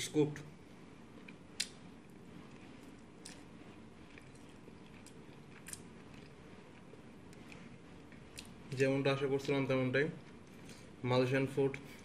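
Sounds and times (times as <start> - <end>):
steady low hum: 0.0 - 12.0
sharp mouth clicks: 1.6 - 1.8
person chewing food: 2.4 - 8.6.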